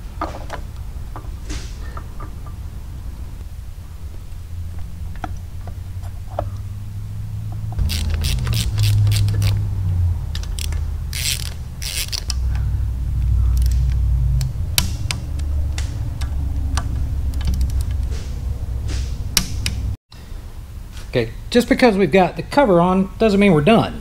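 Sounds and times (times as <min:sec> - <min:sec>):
steady low hum: 0:00.0 - 0:24.0
socket ratchet clicking: 0:07.8 - 0:09.6, 0:10.3 - 0:12.7, 0:13.5 - 0:18.1.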